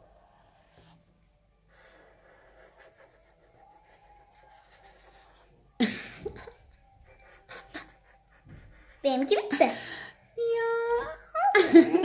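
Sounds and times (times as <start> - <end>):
markers scratching on paper: 1.8 - 5.6.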